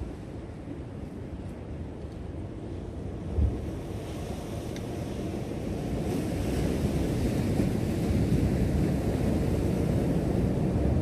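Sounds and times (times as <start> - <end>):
wind rumbling on microphone: 0.0 - 11.0
ocean surf washing over rocks: 2.7 - 11.0.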